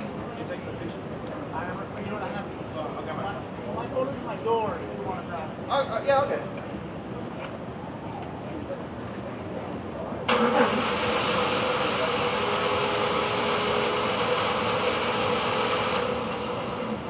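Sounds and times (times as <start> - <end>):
car engine running: 10.3 - 17.0.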